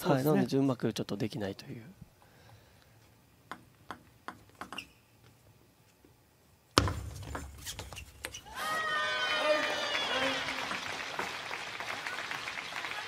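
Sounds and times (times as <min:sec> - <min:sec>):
arena crowd noise: 0:08.5 - 0:13.0
crowd clapping: 0:09.0 - 0:13.0.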